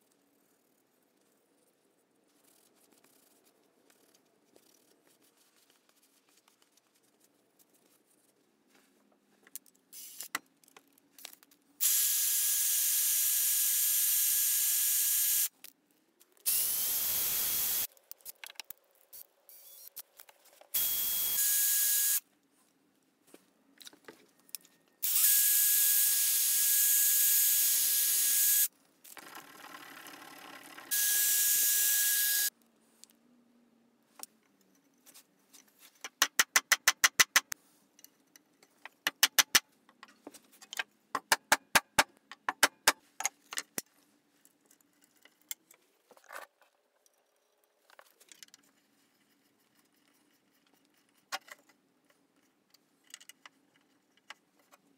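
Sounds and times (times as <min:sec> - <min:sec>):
drill motor whining: 0:16.5 - 0:17.9, 0:20.8 - 0:22.2, 0:25.0 - 0:28.7, 0:30.9 - 0:32.5.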